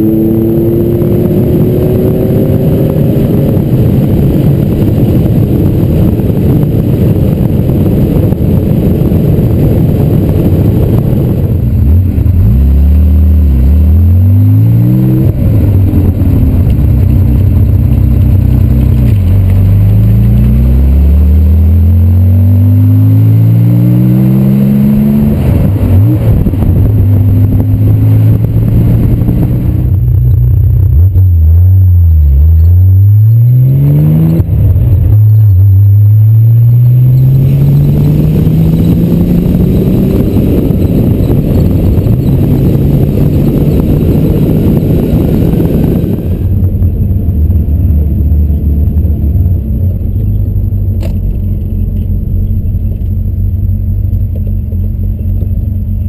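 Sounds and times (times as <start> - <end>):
car engine accelerating: 0.0 - 56.0.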